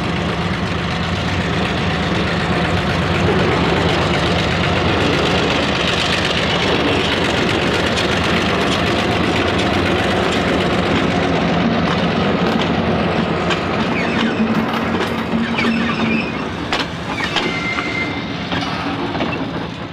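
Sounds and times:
diesel locomotive engine passing: 0:00.0 - 0:19.9
wheels clicking over rail joints: 0:00.0 - 0:19.9
high wheel squeal: 0:13.8 - 0:19.5.

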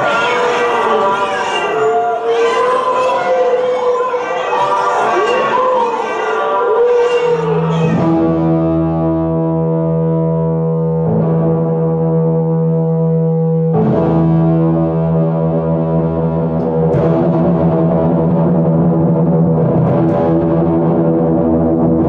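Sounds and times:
electronic horn-like drone: 0:00.0 - 0:14.7.

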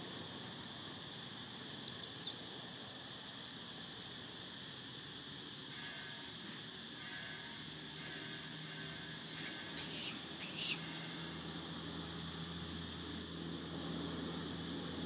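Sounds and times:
high insect drone: 0:00.0 - 0:15.0
thin high chirps: 0:01.4 - 0:04.1, 0:05.6 - 0:06.6.

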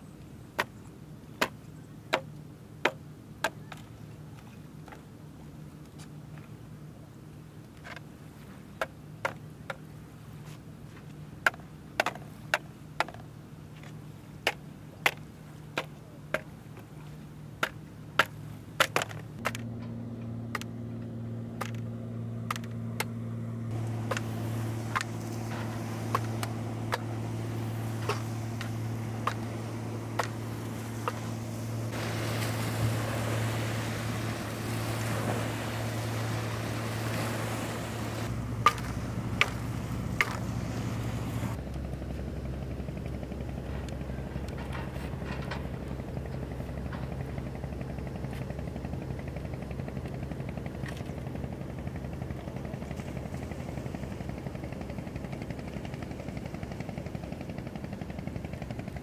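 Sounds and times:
steady low drone: 0:19.0 - 0:59.0
waves washing onto sand: 0:23.7 - 0:41.6.

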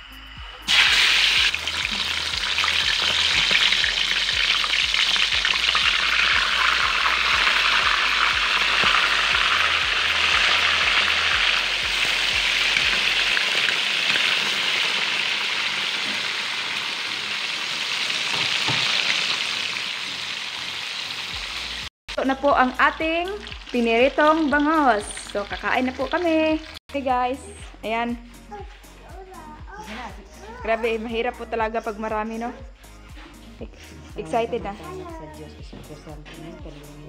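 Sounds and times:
fish sizzling in hot oil: 0:00.7 - 0:26.8.

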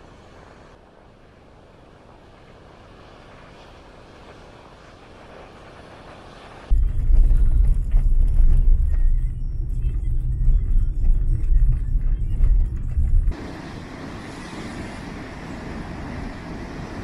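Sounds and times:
loud deep rumble: 0:06.7 - 0:17.0.

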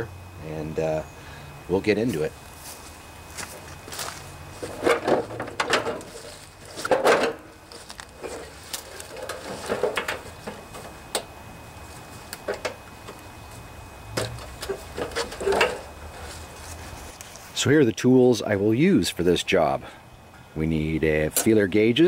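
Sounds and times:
scraping rustles on plastic: 0:02.7 - 0:11.0, 0:14.4 - 0:17.6
sharp clicks and knocks: 0:04.7 - 0:11.3, 0:12.3 - 0:13.2, 0:14.1 - 0:15.9.

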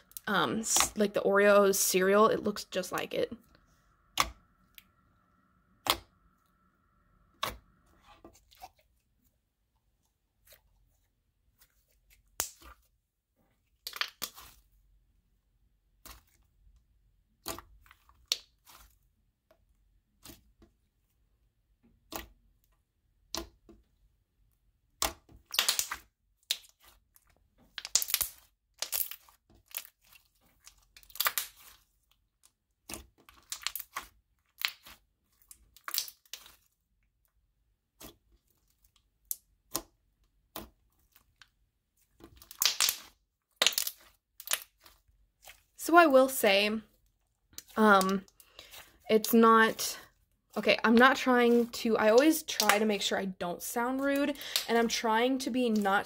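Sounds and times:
slime popping and crackling: 0:12.2 - 0:12.8, 0:13.7 - 0:14.6, 0:24.9 - 0:27.0, 0:27.7 - 0:31.8, 0:32.8 - 0:36.7, 0:42.2 - 0:46.3, 0:50.8 - 0:53.1.

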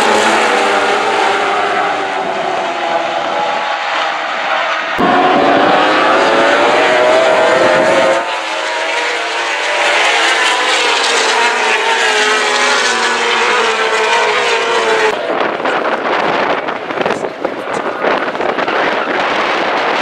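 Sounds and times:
racing motorcycles passing: 0:00.0 - 0:15.7.

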